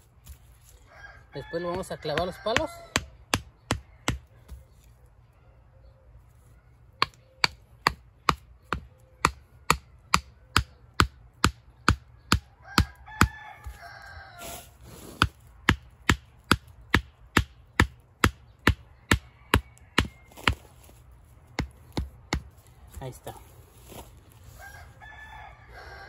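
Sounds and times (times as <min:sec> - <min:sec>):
rooster crowing: 0:00.8 - 0:03.1, 0:12.5 - 0:14.7, 0:19.2 - 0:20.8, 0:24.5 - 0:26.0.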